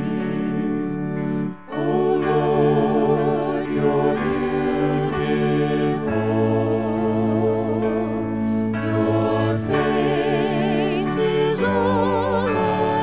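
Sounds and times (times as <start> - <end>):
sustained accompanying chords: 0.0 - 13.0
voices singing a hymn: 0.0 - 13.0.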